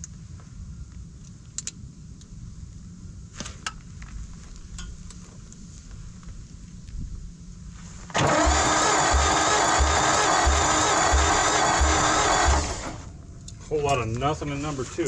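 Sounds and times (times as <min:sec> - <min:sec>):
low steady rumble: 0:00.0 - 0:15.0
metallic clicks of hand tools: 0:01.5 - 0:01.8.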